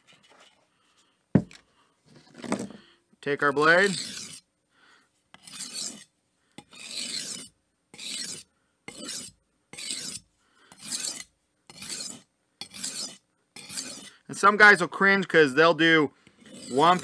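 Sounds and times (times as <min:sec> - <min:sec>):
knife scraping on sharpening stone: 0:03.5 - 0:04.5, 0:05.3 - 0:14.2, 0:16.2 - 0:17.0.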